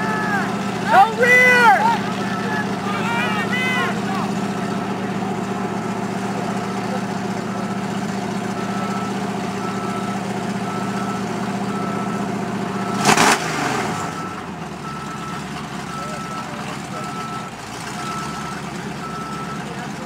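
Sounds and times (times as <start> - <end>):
big engine idling: 0.0 - 20.0
reversing beeper: 0.0 - 20.0.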